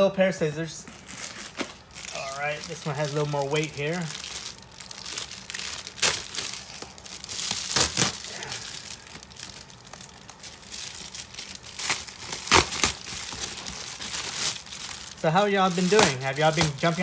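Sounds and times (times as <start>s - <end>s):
plastic mailer bag crinkling: 0.8s - 17.0s
sharp plastic crackles: 1.0s - 17.0s.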